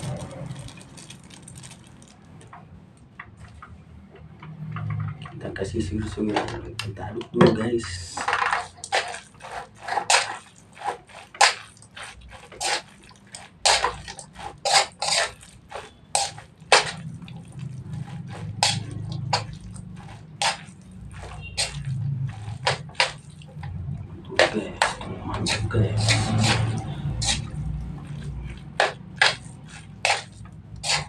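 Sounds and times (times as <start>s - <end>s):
metal spoon scraping a wok: 7.8s - 23.7s, 24.3s - 31.0s.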